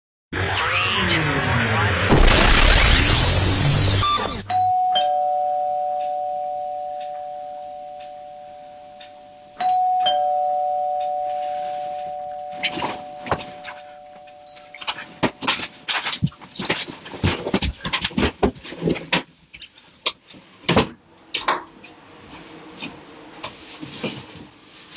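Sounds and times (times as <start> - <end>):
noisy swoosh: 0.4 - 4.5
ding-dong doorbell chime: 4.5 - 15.3
rustling and bumps: 14.8 - 19.8.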